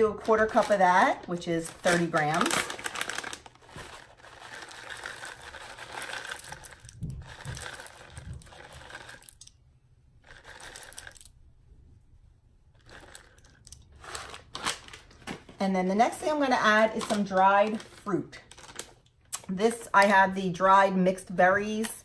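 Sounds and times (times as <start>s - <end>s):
bag crinkling: 0.0s - 9.5s, 10.2s - 11.3s, 12.8s - 15.6s, 16.9s - 19.4s
seeds pouring into a bowl: 4.3s - 9.5s, 10.3s - 11.3s.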